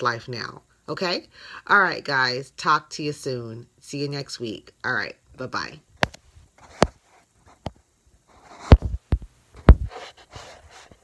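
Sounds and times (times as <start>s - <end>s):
rubbing on phone: 6.2s - 11.0s
phone handling knocks and thuds: 8.7s - 9.9s.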